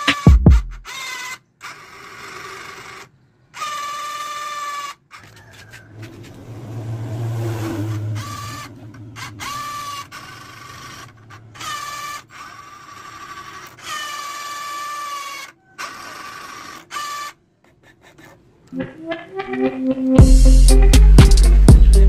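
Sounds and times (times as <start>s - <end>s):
electric gear motors whirring: 0.0s - 17.4s.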